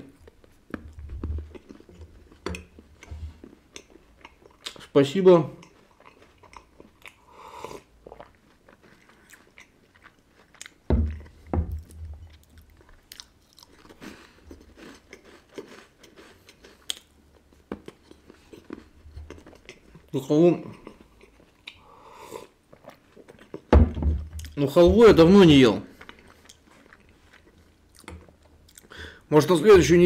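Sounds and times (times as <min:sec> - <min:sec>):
wafer biscuits crunching: 0:08.0 - 0:20.1
deep knocks: 0:10.9 - 0:12.2, 0:23.8 - 0:25.3.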